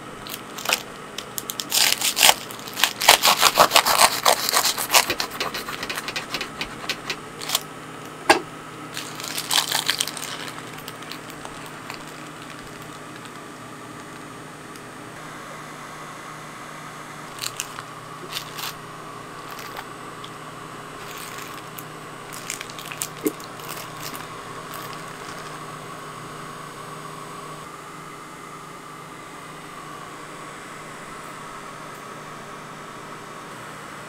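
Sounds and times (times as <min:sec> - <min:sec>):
cotton candy machine motor humming: 0:00.0 - 0:34.0
plastic cups clicking and crinkling: 0:00.3 - 0:07.6, 0:09.0 - 0:14.2, 0:17.4 - 0:18.8, 0:19.5 - 0:19.8, 0:21.0 - 0:25.6.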